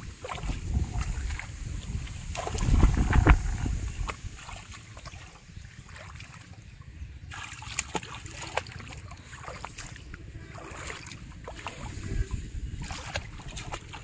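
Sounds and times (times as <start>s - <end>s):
shallow water splashing: 0.0s - 14.0s.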